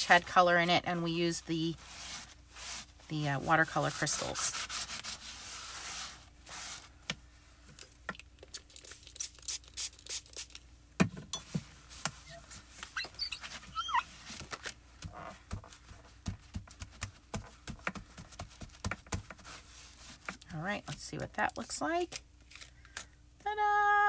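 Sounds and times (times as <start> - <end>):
paper towel rubbing plastic: 0.0 - 7.0, 12.2 - 20.4
stencil squeak: 13.0 - 14.0.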